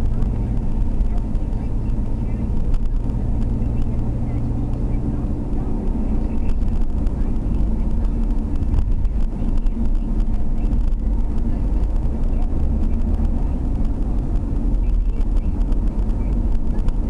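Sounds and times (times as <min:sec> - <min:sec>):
car engine and tyre rumble: 0:00.0 - 0:17.0.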